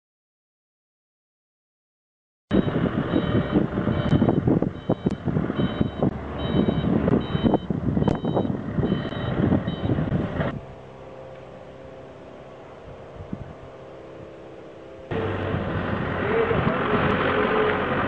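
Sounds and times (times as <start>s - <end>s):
reversing alarm beeping: 2.5s - 10.5s
engine and yard noise: 2.5s - 18.0s
machine hum: 2.5s - 18.0s.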